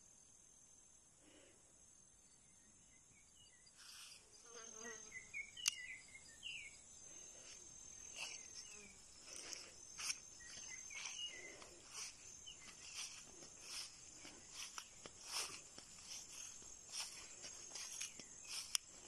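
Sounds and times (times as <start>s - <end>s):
insects trilling: 0.0s - 19.0s
sharp clicks: 5.6s - 5.8s.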